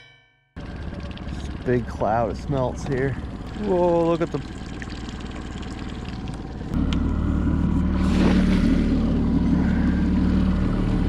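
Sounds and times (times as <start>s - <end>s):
boat motor humming: 0.6s - 11.0s
water splashing: 0.7s - 6.8s, 7.9s - 10.0s.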